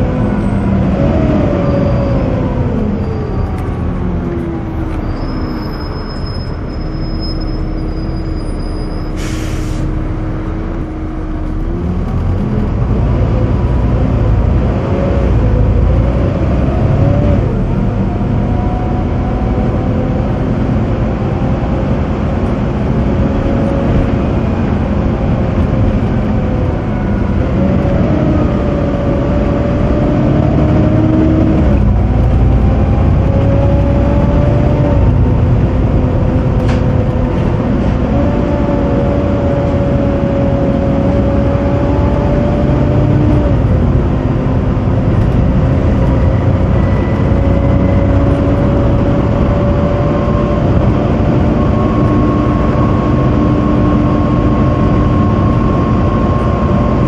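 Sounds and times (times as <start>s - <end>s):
bus engine and road rumble: 0.0s - 57.0s
whining tones changing pitch: 0.1s - 9.2s.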